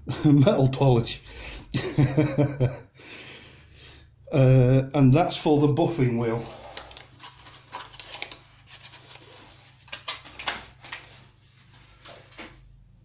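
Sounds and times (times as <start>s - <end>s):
packaging rustling: 6.4s - 12.4s.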